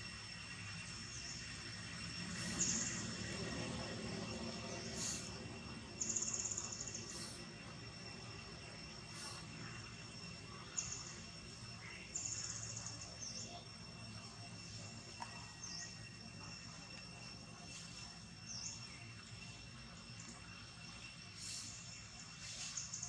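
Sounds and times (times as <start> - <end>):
high-pitched insect drone: 0.0 - 23.0.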